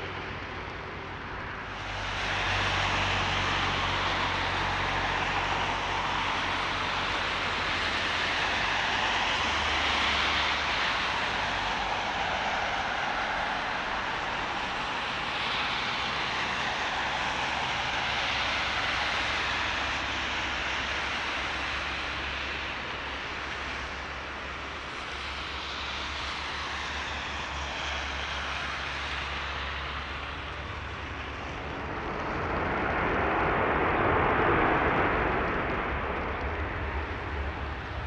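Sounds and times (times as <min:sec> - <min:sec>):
jet airliner landing rumble: 0:00.0 - 0:38.0.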